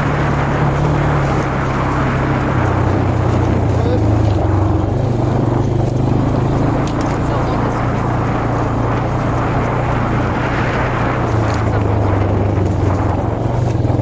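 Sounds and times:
atv engine running: 0:00.0 - 0:14.0.

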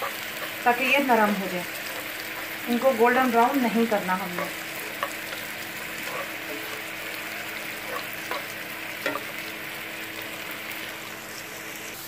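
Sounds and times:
onions sizzling in hot oil: 0:00.0 - 0:12.0
spatula knocking against pan: 0:04.3 - 0:06.8, 0:07.8 - 0:09.4.

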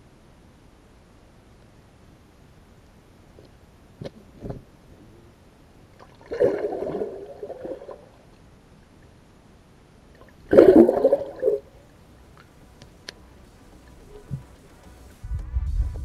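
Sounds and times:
underwater water gurgling: 0:06.0 - 0:08.3, 0:10.2 - 0:11.8.

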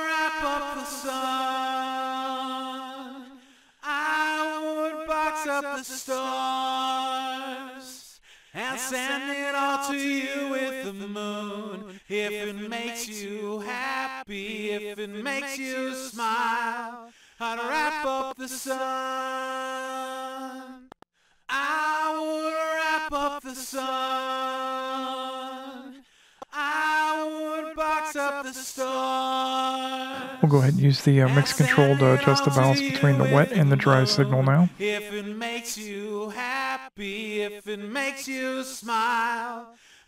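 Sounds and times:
person singing with vibrato: 0:21.5 - 0:35.0.

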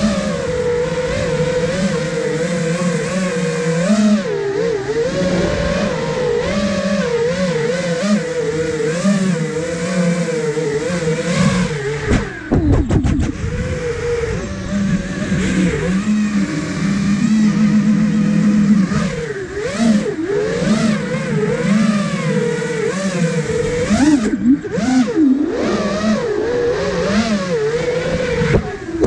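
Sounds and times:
quadcopter motors buzzing: 0:00.0 - 0:29.0
low rumble: 0:04.8 - 0:08.8.

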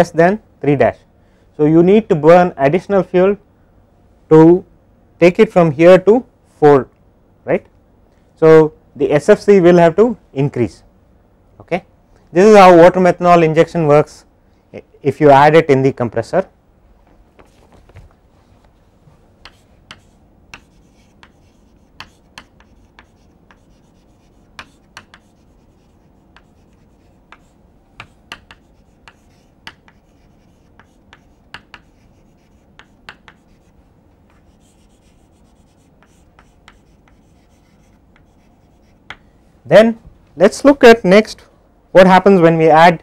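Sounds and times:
faint room hum: 0:00.0 - 0:43.0
chalk tapping and scratching: 0:19.4 - 0:39.3.

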